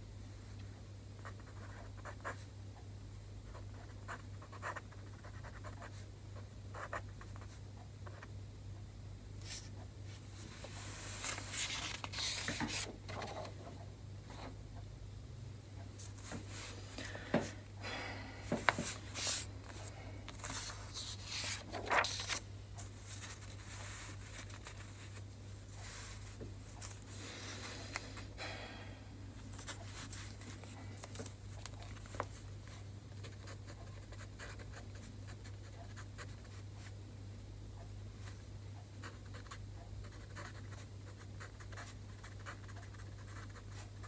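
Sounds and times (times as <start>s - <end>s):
low steady hum: 0.0s - 44.0s
paper rustling and sliding: 10.4s - 13.3s, 18.5s - 22.4s.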